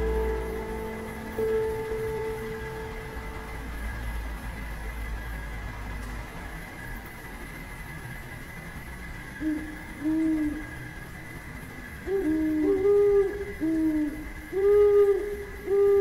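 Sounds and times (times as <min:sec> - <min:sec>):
low soft hoots: 0:00.0 - 0:04.3, 0:09.4 - 0:10.9, 0:12.0 - 0:16.0
faint steady high tone: 0:00.0 - 0:05.2.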